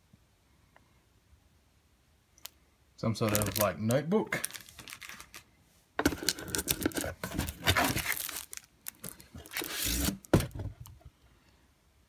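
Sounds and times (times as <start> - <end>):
plastic wrapping crinkling: 3.2 - 10.4.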